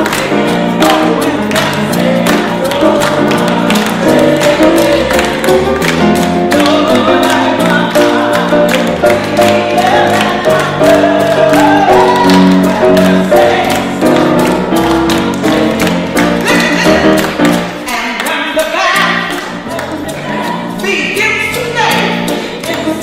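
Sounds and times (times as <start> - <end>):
group singing gospel: 0.0 - 18.6, 19.4 - 23.0.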